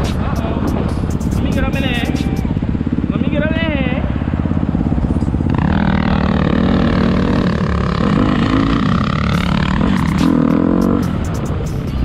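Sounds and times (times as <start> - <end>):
dirt bike engine revving: 4.0 - 11.6.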